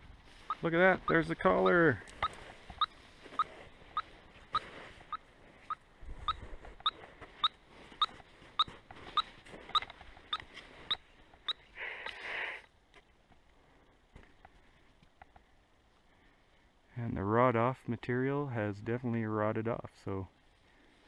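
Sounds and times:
radio receiver beeping: 0.5 - 12.2.

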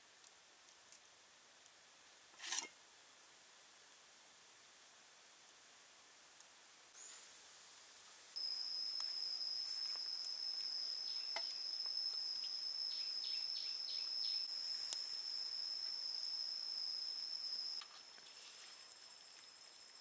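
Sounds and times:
insect shrill call: 8.4 - 20.0.

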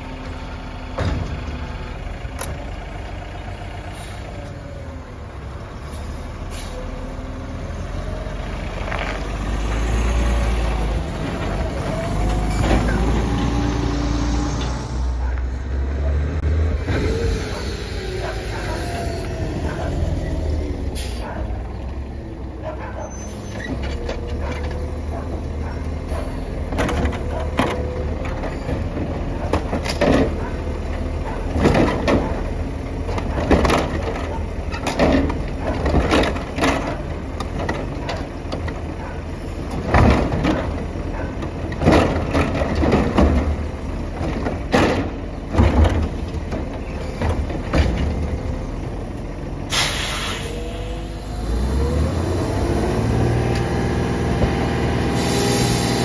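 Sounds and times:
truck engine and hydraulics running: 0.0 - 56.0
loud bangs of cart being dumped: 41.6 - 48.4
burst of hissing air: 49.7 - 50.6.

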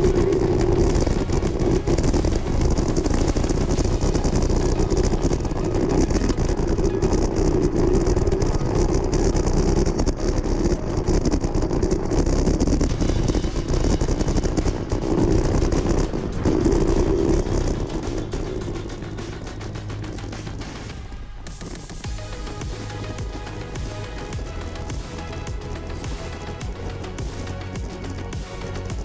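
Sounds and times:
wind rushing over microphone: 0.0 - 20.6
tyres rolling on dirt road: 0.0 - 29.0.

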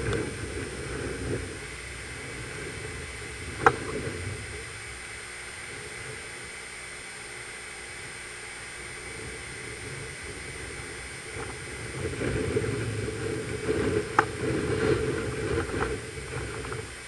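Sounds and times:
strong wind gusts on microphone: 0.0 - 17.0.

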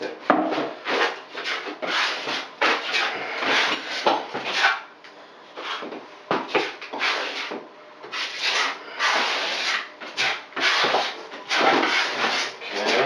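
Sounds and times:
putty knife scraping: 0.5 - 4.8, 5.6 - 13.0.

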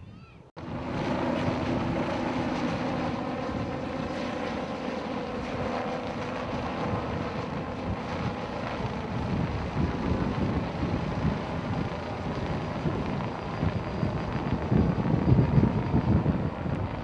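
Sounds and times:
wind noise on microphone: 5.4 - 17.0.

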